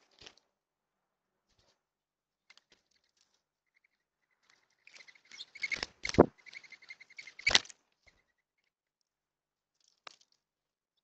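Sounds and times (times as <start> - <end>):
dove wings twittering whistle: 4.5 - 7.6
loud wing flaps: 5.8 - 6.3.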